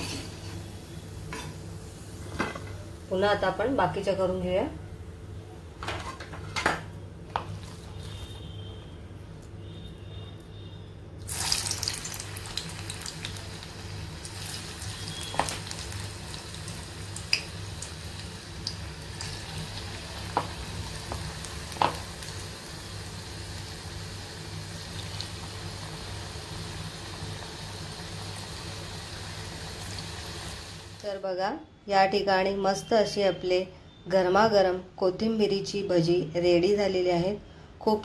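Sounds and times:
batter sizzling in hot oil: 7.3 - 31.1.

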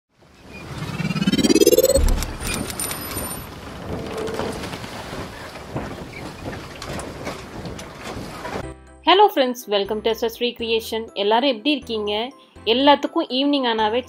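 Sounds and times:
rising whoosh: 0.5 - 3.3.

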